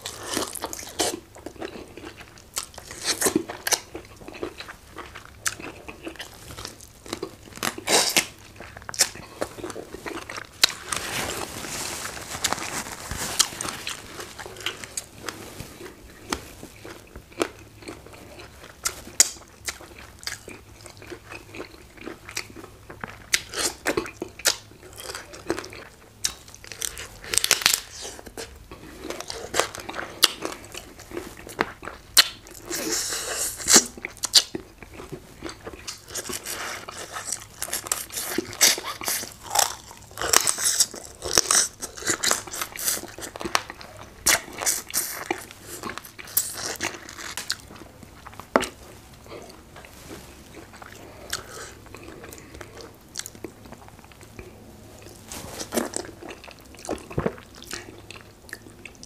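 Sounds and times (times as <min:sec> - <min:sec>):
person chewing tough chicken: 0:00.0 - 0:59.0.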